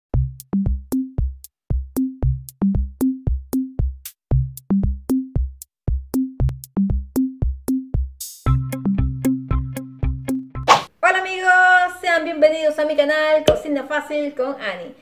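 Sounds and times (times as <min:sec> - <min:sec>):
low bass notes: 0:00.2 - 0:00.8, 0:08.5 - 0:10.7
electronic drum beat: 0:00.2 - 0:08.7.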